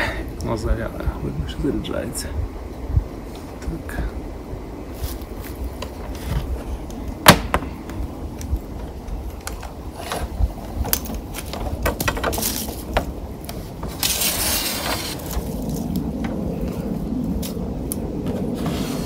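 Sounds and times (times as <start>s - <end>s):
rustle: 4.8s - 19.0s.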